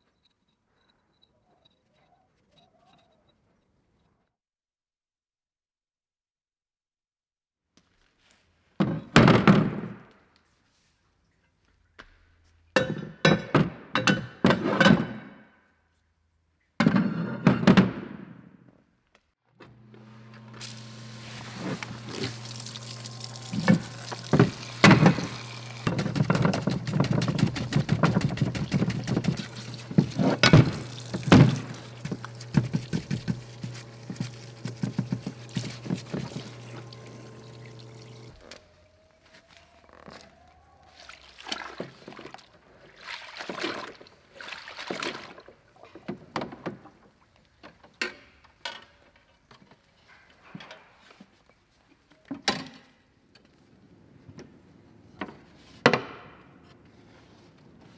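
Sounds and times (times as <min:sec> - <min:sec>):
machine hum with hiss: 0:19.9 - 0:26.0.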